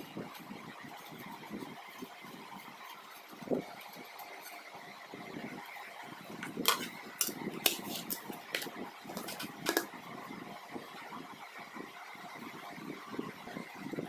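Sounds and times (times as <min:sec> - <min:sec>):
metal pan clinking against plate: 0:06.4 - 0:09.9.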